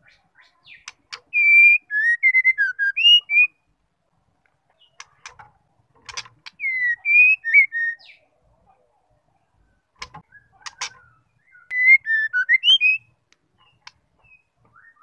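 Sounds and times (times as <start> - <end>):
bird singing whistled notes: 0.0 - 3.7, 6.5 - 8.3, 10.2 - 15.0
sharp clicks: 0.8 - 1.3, 5.0 - 6.6.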